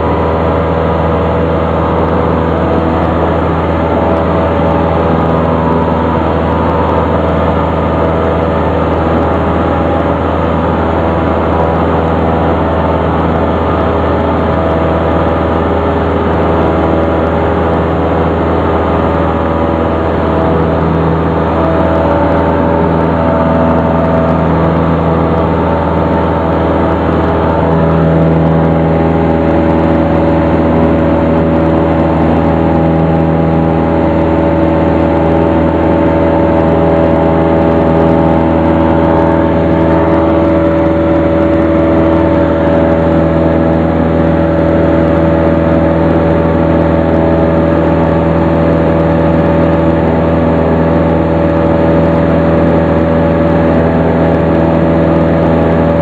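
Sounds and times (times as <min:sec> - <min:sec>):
aircraft engine and propeller droning: 0:00.0 - 0:56.0.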